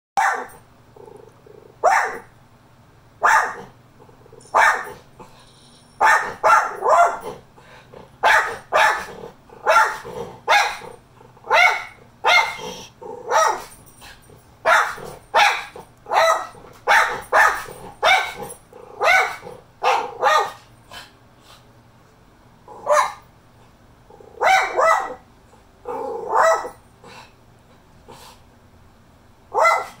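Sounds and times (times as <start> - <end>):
dog barking: 0.2 - 0.6, 1.8 - 2.3, 3.2 - 3.7, 4.5 - 5.0, 6.0 - 7.4, 8.2 - 13.8, 14.6 - 20.6, 22.8 - 23.2, 24.4 - 25.2, 26.2 - 26.8, 29.5 - 30.0.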